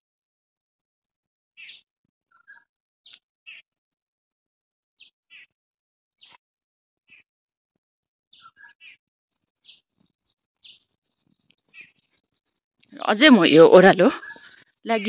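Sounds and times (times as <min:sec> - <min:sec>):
faint bird chirps: 0:08.3 - 0:09.0, 0:10.6 - 0:15.0.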